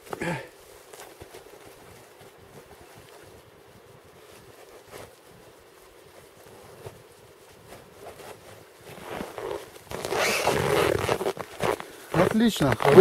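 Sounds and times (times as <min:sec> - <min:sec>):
cloth rustling: 0:00.0 - 0:13.0
heavy clothing rustling: 0:00.0 - 0:13.0
snow crunching: 0:00.0 - 0:13.0.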